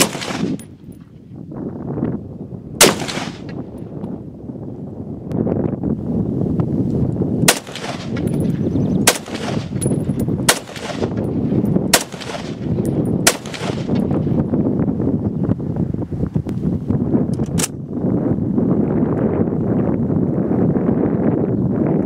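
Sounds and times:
rifle shots: 0:00.0 - 0:00.7, 0:02.8 - 0:03.6, 0:07.5 - 0:08.3, 0:09.0 - 0:11.3, 0:11.9 - 0:14.0
wind rumble on microphone: 0:00.0 - 0:22.0.

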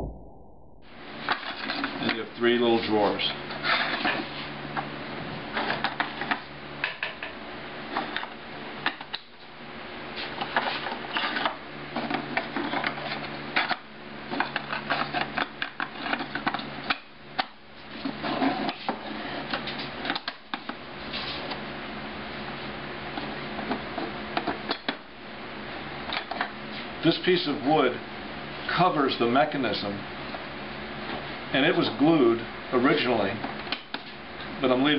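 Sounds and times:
steady low hum: 0:00.0 - 0:34.9.

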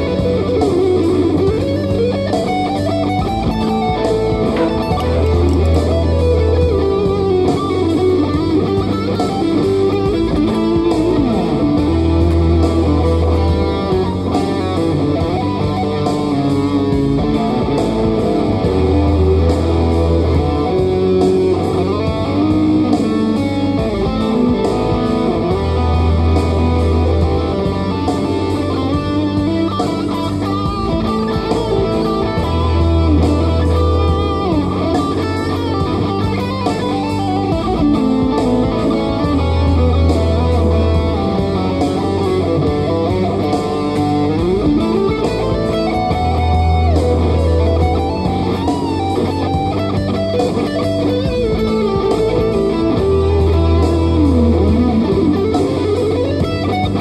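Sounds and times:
electric guitar lead line: 0:00.0 - 0:57.0
deep bass note: 0:03.3 - 0:07.8.

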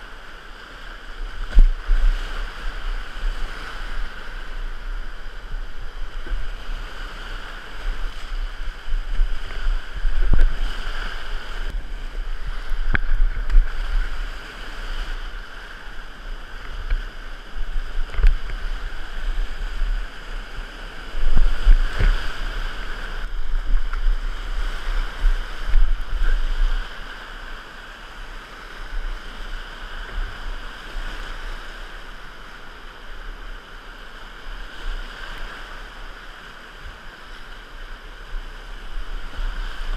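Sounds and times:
rapids rushing and splashing: 0:00.0 - 0:39.9
low buffeting rumble: 0:01.2 - 0:27.6.

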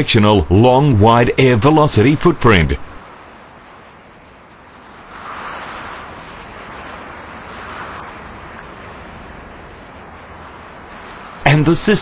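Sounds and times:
rushing air noise: 0:02.7 - 0:12.0.

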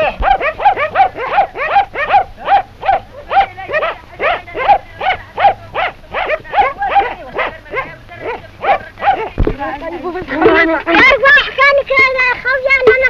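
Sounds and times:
dogs barking rapidly: 0:00.0 - 0:09.8.

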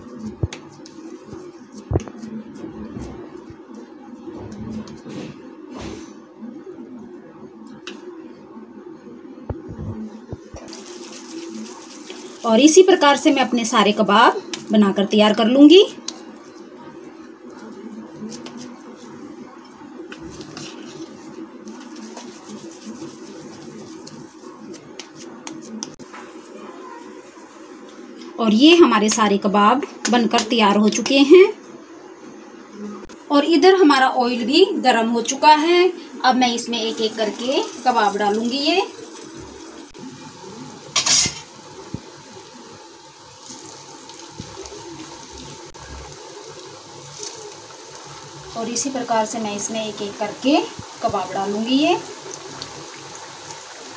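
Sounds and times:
steady low hum: 0:00.0 - 0:53.9
food deep-frying in oil: 0:10.4 - 0:29.6, 0:35.2 - 0:53.9.

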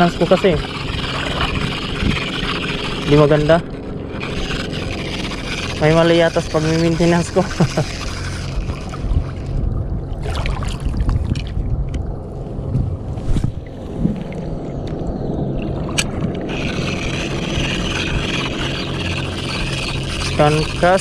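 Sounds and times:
fishing reel being cranked: 0:00.0 - 0:09.6, 0:15.9 - 0:21.0
water lapping: 0:00.0 - 0:12.2, 0:13.6 - 0:21.0
wind on microphone: 0:00.0 - 0:21.0.

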